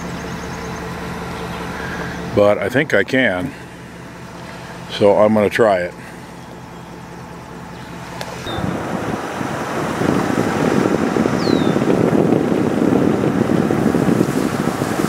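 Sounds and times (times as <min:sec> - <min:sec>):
vehicle driving on gravel: 0:00.0 - 0:15.0
wind buffeting microphone: 0:08.0 - 0:15.0.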